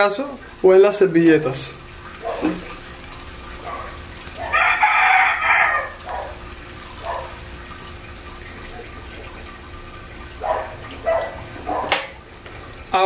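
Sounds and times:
food sizzling in oil: 0.0s - 13.0s
rooster crowing: 4.4s - 6.4s.

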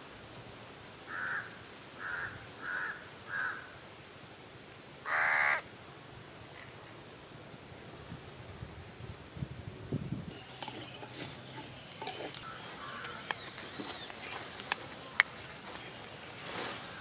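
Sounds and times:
faint cooking hiss: 0.0s - 17.0s
spatula scraping clay bowl: 10.4s - 15.1s.

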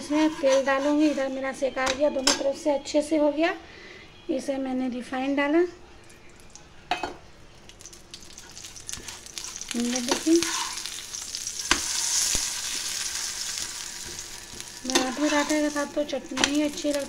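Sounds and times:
spatula scraping and knocking pan: 0.0s - 2.4s, 8.9s - 11.0s, 11.6s - 17.0s
oil sizzling on a hot pan: 7.6s - 17.0s.

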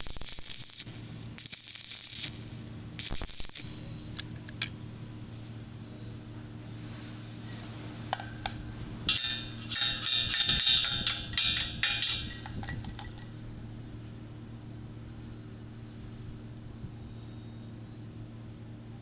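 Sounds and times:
weld slag crackling and tinkling: 0.0s - 4.8s, 7.2s - 13.7s
steady low hum: 0.0s - 19.0s.

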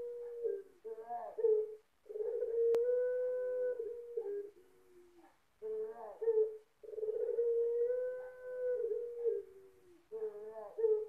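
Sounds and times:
dove cooing: 0.0s - 11.0s.

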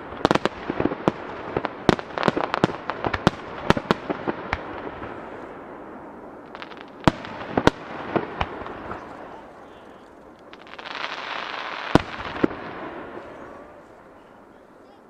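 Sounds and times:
firework shells bursting: 0.0s - 14.2s
firework crackling: 0.0s - 15.0s.

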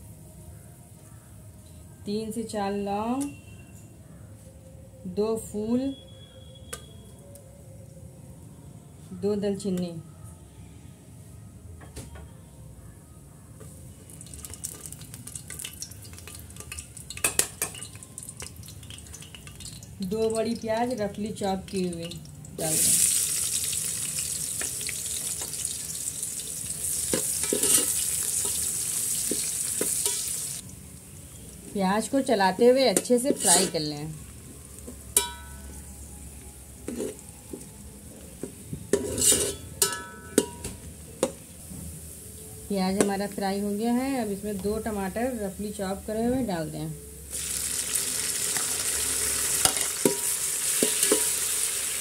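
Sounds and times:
spices sizzling in hot oil: 14.1s - 33.9s, 47.3s - 52.0s
metal spoon clinking on pot: 15.5s - 19.8s, 27.1s - 28.6s, 29.3s - 30.3s, 35.1s - 35.8s, 38.9s - 41.4s, 49.6s - 51.5s
spoon scraping and clinking pot: 27.1s - 30.4s, 32.9s - 33.9s, 36.9s - 37.2s, 38.9s - 40.8s, 49.6s - 51.5s.

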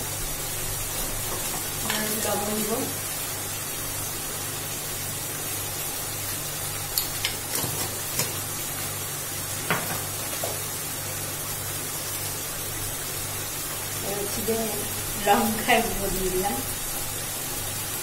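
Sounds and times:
food sizzling in oil: 0.0s - 18.0s.

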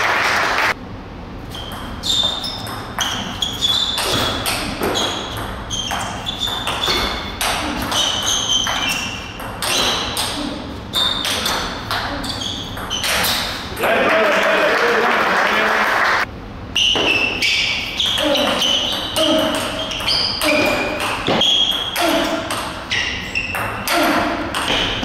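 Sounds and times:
table tennis ball hits: 1.7s - 10.4s, 18.0s - 22.9s, 23.5s - 25.0s.

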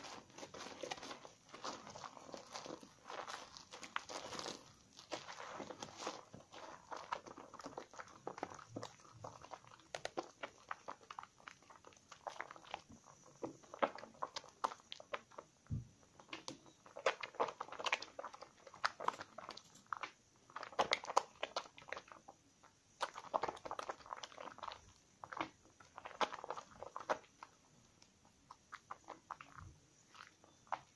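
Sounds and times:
soap lather squelching: 0.0s - 22.4s, 23.0s - 30.9s.

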